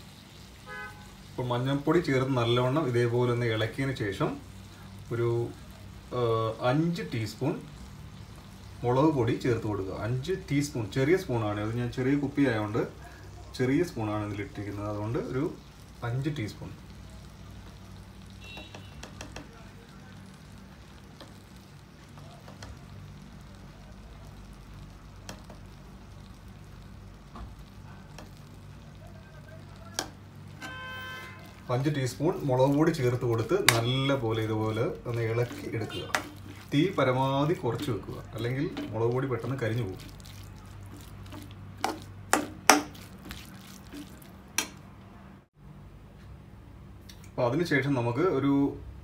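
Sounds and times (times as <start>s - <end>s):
frying sizzle: 0.0s - 45.0s
spoon clicking against pan: 18.6s - 19.5s.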